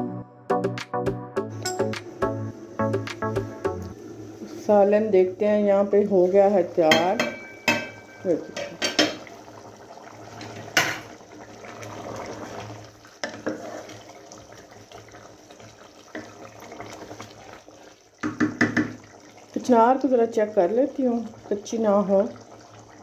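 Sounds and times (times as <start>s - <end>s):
curry bubbling: 3.8s - 23.0s
metal pot lid clanking: 6.8s - 9.3s
wooden spoon stirring in pot: 11.5s - 19.6s.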